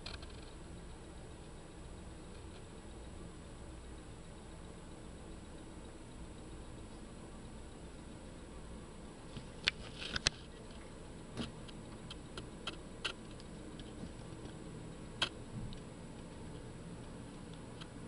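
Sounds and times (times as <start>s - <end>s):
small clicks and ticks: 0.0s - 3.2s, 9.3s - 18.0s.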